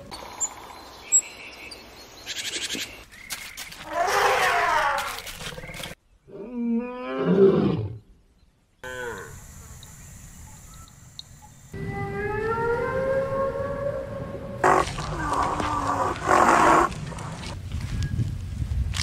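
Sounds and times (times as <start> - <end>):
loud animal call: 11.8 - 17.0
lion roaring: 11.9 - 17.5.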